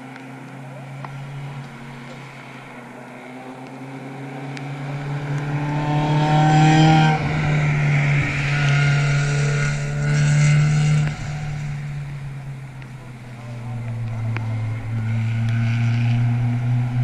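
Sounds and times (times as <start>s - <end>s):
race car engine pulling hard: 0.0s - 17.0s.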